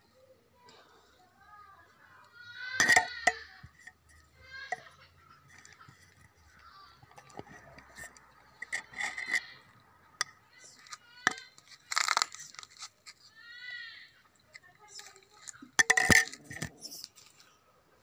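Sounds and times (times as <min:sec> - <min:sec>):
scraping rustle: 0:14.5 - 0:17.6.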